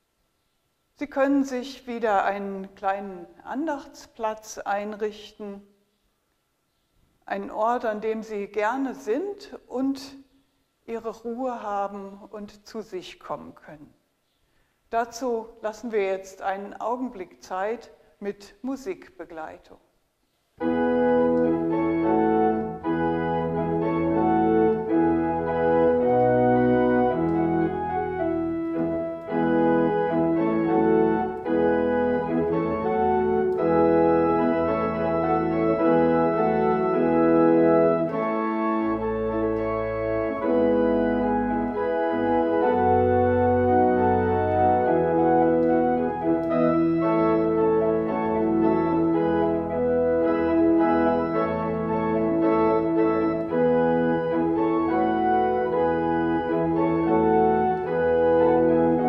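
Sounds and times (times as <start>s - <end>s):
deep organ pedal bass: 20.6s - 59.0s
organ playing held chords: 20.6s - 59.0s.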